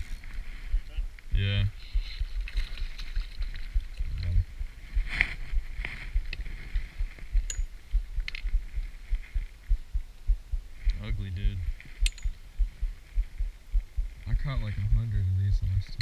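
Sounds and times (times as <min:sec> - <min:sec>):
sharp clicks and knocks: 0:12.0 - 0:12.4.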